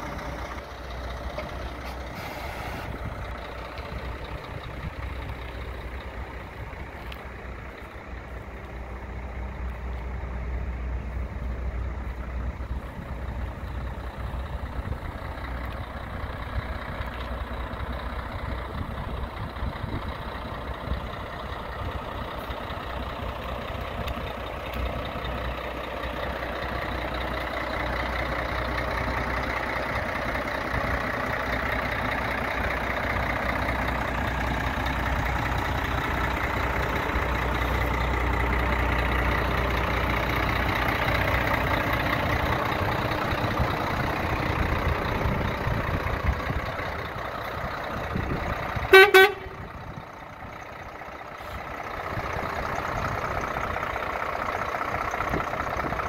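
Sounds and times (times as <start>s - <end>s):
diesel truck engine rumble: 0.0s - 56.0s
truck horn toot: 48.9s - 49.7s.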